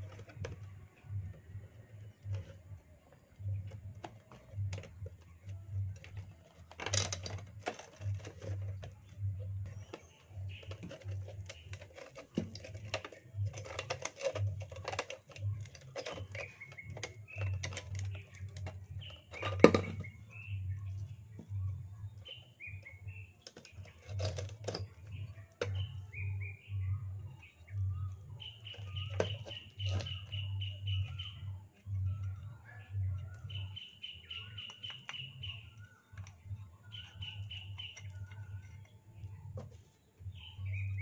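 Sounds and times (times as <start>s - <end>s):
birds chirping: 0.0s - 41.0s
metal lantern clicking and rattling: 3.4s - 20.8s, 22.0s - 26.5s, 34.4s - 41.0s.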